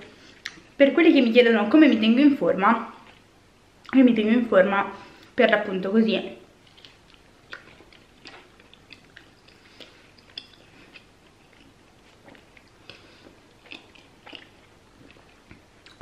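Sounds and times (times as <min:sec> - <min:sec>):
person chewing with mouth clicks: 0:00.3 - 0:00.7, 0:06.6 - 0:16.0.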